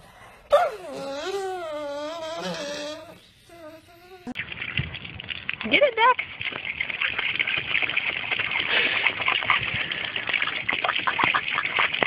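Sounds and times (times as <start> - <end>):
dog snapping and slurping water: 4.4 - 12.0
water spraying from a hose: 4.6 - 12.0.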